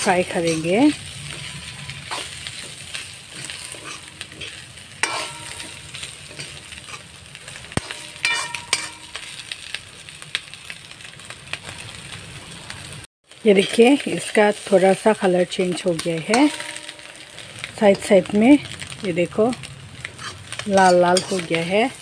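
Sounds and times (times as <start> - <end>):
metal spatula scraping a pan: 0.0 - 9.7, 15.6 - 22.0
food sizzling in a pan: 0.0 - 22.0.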